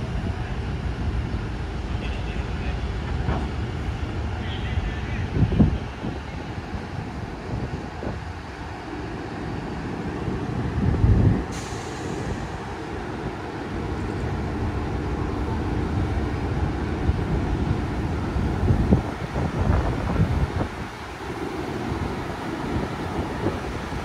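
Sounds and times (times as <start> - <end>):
locomotive diesel engine rumbling: 0.0 - 24.0
hiss: 11.5 - 12.7.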